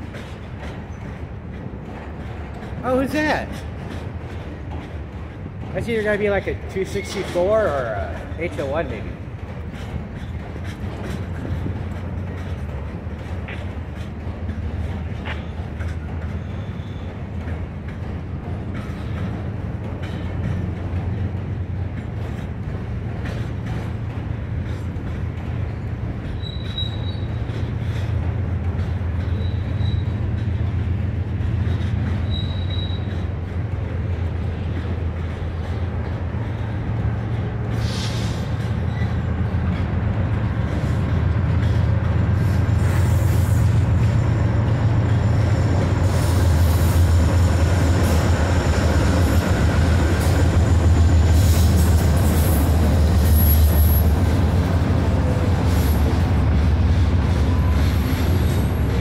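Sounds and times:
train low rumble: 0:00.0 - 0:59.0
train wheel squeal: 0:06.8 - 0:08.8, 0:13.6 - 0:17.6, 0:24.7 - 0:28.3, 0:29.1 - 0:30.9, 0:31.5 - 0:33.5, 0:37.7 - 0:39.8, 0:40.6 - 0:59.0.

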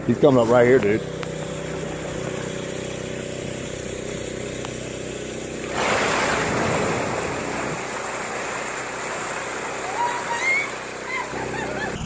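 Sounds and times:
boat engine idling: 0:00.0 - 0:12.0
loud rush of water: 0:05.6 - 0:12.0.

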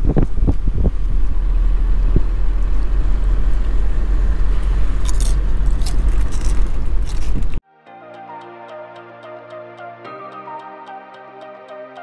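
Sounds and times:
car road rumble: 0:00.0 - 0:07.6
wind buffeting microphone: 0:00.0 - 0:07.6
sharp crackles: 0:04.6 - 0:07.6.

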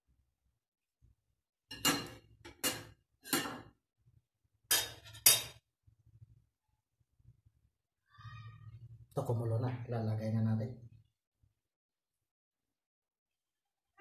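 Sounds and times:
metal spoon clinking on dishware: 0:01.7 - 0:03.7, 0:04.7 - 0:05.6.

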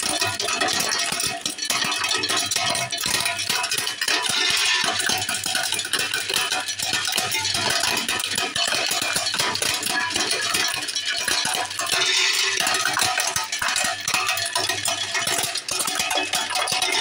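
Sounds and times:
hazelnuts cracking and clattering: 0:04.3 - 0:04.8, 0:11.8 - 0:13.6
shells falling into plastic tub: 0:11.9 - 0:13.3.

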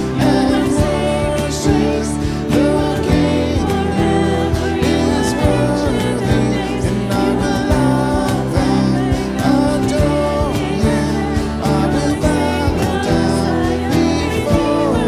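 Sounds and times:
acoustic guitar: 0:00.0 - 0:15.0
bass: 0:00.0 - 0:15.0
cajon: 0:00.0 - 0:15.0
keyboard: 0:00.0 - 0:15.0
vocalists singing: 0:00.0 - 0:15.0.

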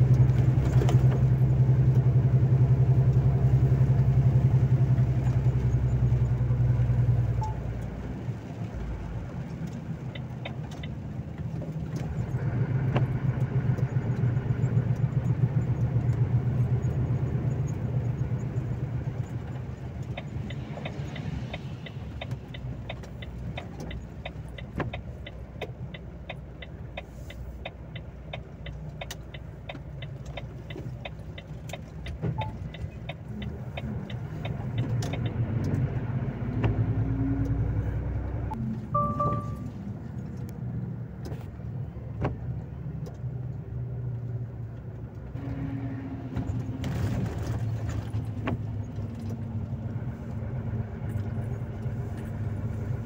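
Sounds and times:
truck diesel engine from inside cab: 0:00.0 - 0:53.0
turn indicator ticking: 0:09.4 - 0:12.1, 0:16.9 - 0:36.8.

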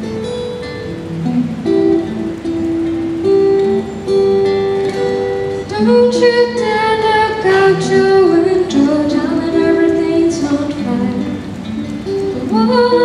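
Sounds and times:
acoustic guitar ringing notes: 0:00.0 - 0:13.0
girl singing into a microphone: 0:05.6 - 0:13.0.

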